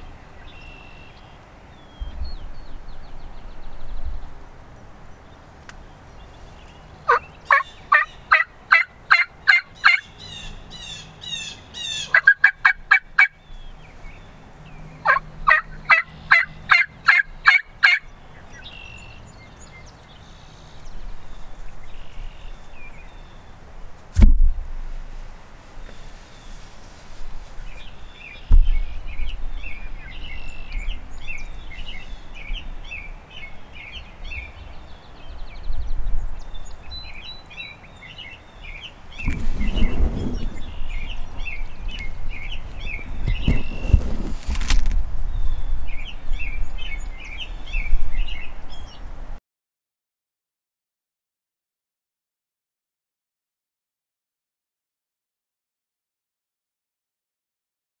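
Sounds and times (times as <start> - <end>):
small birds chirping: 0.0 - 23.6, 25.7 - 44.6, 45.3 - 49.1
wild turkey yelping: 7.1 - 13.4, 15.0 - 18.1
sharp knock: 24.2 - 24.6.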